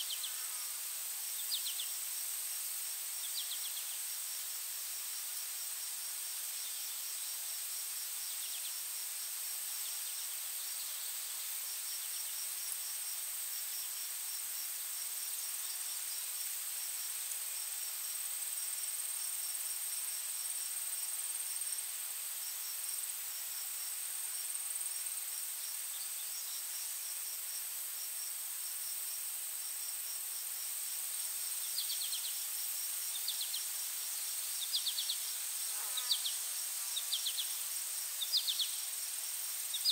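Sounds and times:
quick high insect calls: 0.0s - 4.2s, 29.7s - 39.9s
insect chirps: 0.0s - 39.9s
insects droning: 0.0s - 39.9s.

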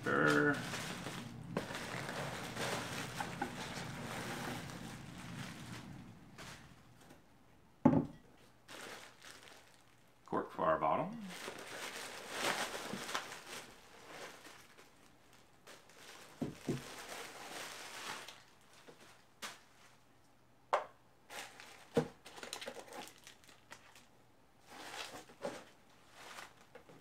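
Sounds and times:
plastic packaging crinkling: 0.0s - 7.1s, 8.6s - 10.2s, 11.2s - 20.0s, 21.3s - 27.0s
objects knocking on desk: 7.8s - 8.2s.

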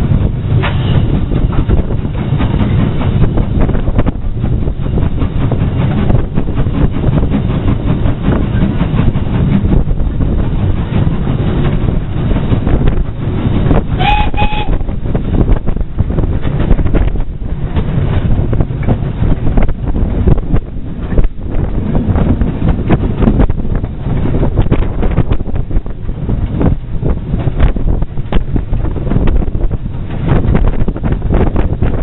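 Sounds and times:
train wheels rumbling: 0.0s - 32.0s
wind on microphone: 0.0s - 32.0s
steam whistle toots: 14.0s - 14.8s.

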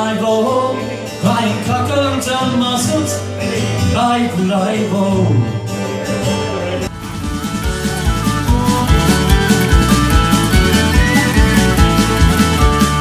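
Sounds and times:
acoustic guitar: 0.0s - 13.0s
button accordion: 6.9s - 13.0s.

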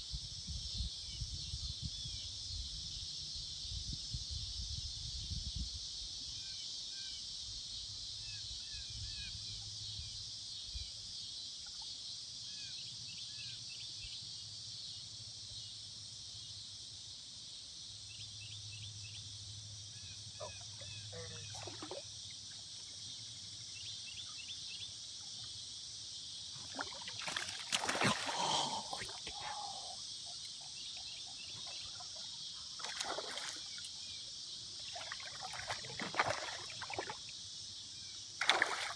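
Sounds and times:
insects droning: 0.0s - 38.9s
fish splashing in water: 26.7s - 29.2s, 32.8s - 33.8s, 34.9s - 37.2s, 38.4s - 38.9s.

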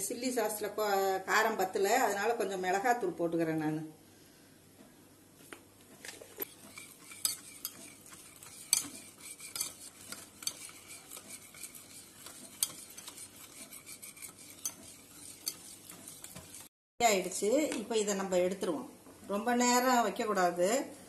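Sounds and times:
whisk swishing batter: 6.4s - 16.7s
whisk wires clinking on bowl: 6.4s - 16.7s.

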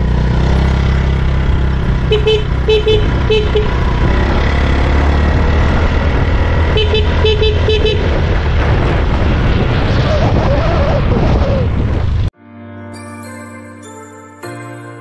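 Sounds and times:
vehicle engine rumble: 0.0s - 12.3s
short car horn toots: 2.1s - 3.8s.

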